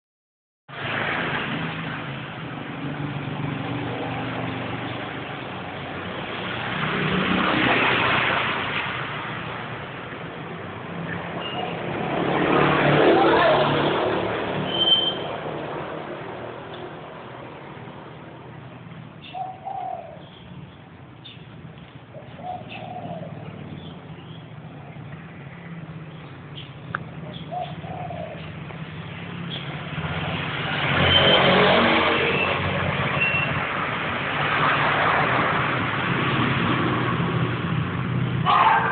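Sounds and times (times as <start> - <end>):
vehicle passing: 0.7 - 19.2, 21.5 - 38.9
road traffic rush: 0.7 - 38.9
dove cooing: 19.2 - 20.3, 22.1 - 23.8, 27.2 - 28.6.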